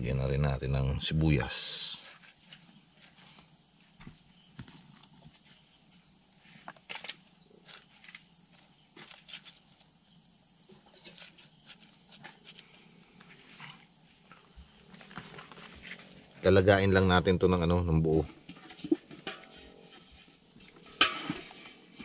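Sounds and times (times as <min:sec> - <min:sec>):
high background hiss: 0:00.0 - 0:22.0.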